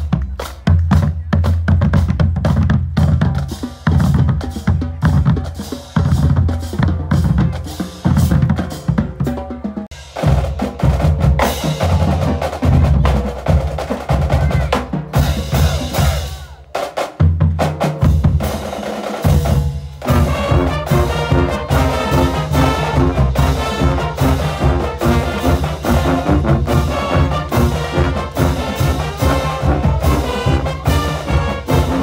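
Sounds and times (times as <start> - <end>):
marching drums beating: 0.0 - 32.0
wind instruments playing a tune: 14.2 - 16.7, 20.0 - 32.0.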